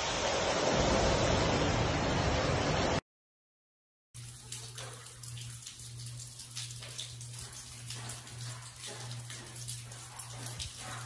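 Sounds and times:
water dripping onto wet floor: 4.2s - 11.0s.

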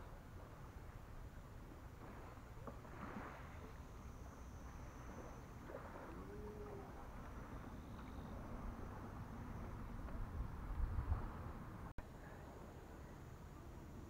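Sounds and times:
wind rumble on microphone: 0.0s - 11.9s
small waves on gravel shore: 1.8s - 9.1s
faint call: 4.8s - 8.8s.

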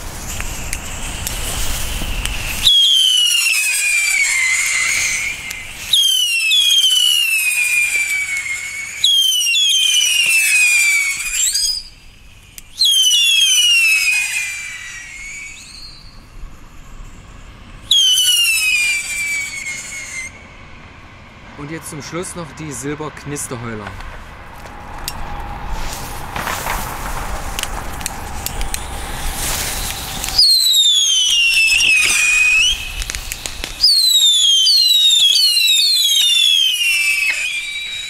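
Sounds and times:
howling firework whistles: 0.0s - 38.0s.

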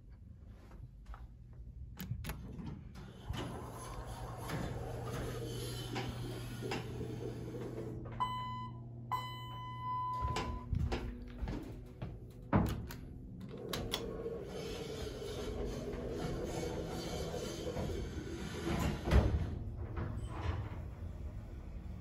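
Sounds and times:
elevator hum and rattle: 0.4s - 22.0s
elevator doors sliding open: 2.0s - 8.4s, 10.1s - 22.0s
elevator signal beeps: 8.2s - 10.7s.

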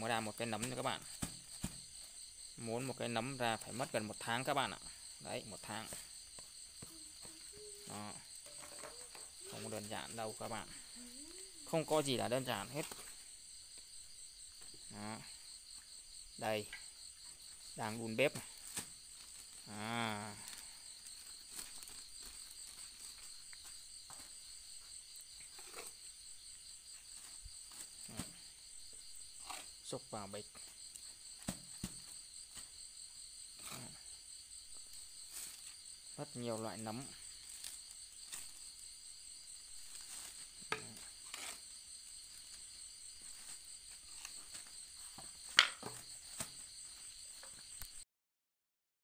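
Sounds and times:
crickets chirring: 0.0s - 48.0s
bags rustling and knocking: 1.0s - 2.0s.

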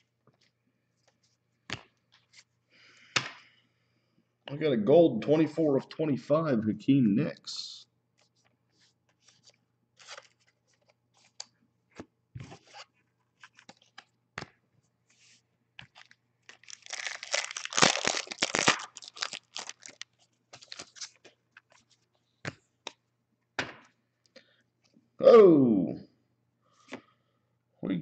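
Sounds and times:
cards rustling: 8.2s - 11.6s, 12.5s - 14.5s, 15.3s - 22.1s
foil pack tearing and crinkling: 16.0s - 21.2s.

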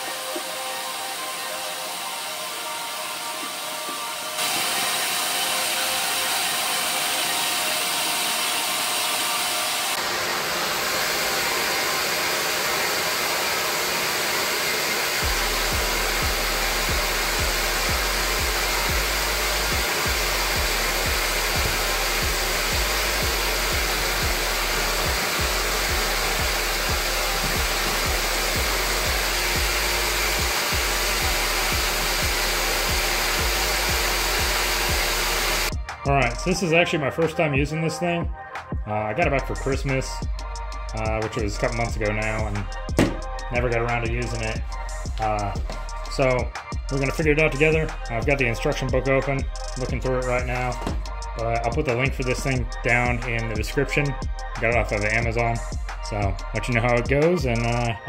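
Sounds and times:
shop vacuum sucking: 0.0s - 38.0s, 40.8s - 58.0s
low regular beat: 15.2s - 58.0s.

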